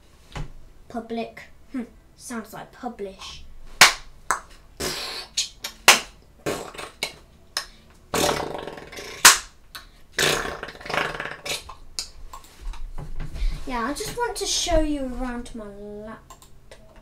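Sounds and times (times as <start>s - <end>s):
person beatboxing clicks and hisses: 4.8s - 12.2s.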